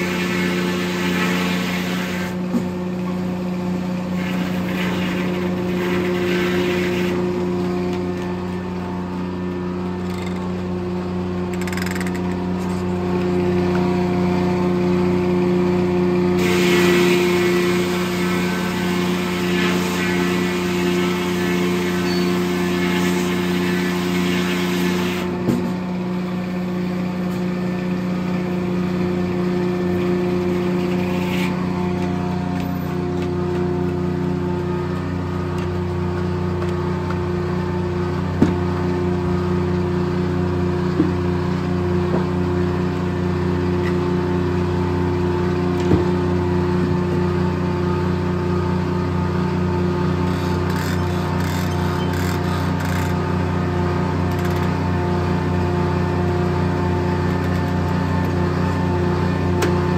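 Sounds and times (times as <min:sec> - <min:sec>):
saw blade cutting log: 0:00.0 - 0:02.7, 0:04.1 - 0:08.3, 0:16.4 - 0:25.4, 0:29.9 - 0:32.9, 0:50.2 - 0:53.2
sawmill engine hum: 0:00.0 - 0:59.9.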